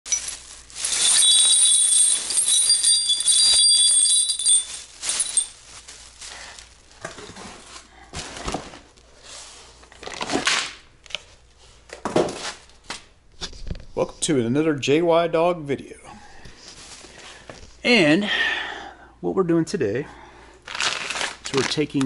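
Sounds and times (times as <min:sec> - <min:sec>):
plastic bag rustling: 0:00.1 - 0:08.9, 0:20.6 - 0:22.0
bolts clinking on concrete floor: 0:01.0 - 0:05.5
bright ringing jingle: 0:01.0 - 0:05.6.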